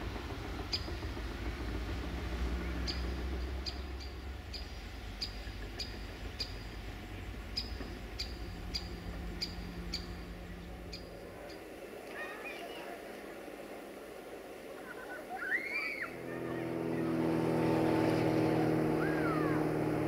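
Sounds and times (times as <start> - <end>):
low steady rumble: 0.0 - 20.0
bird chirping: 2.7 - 11.7.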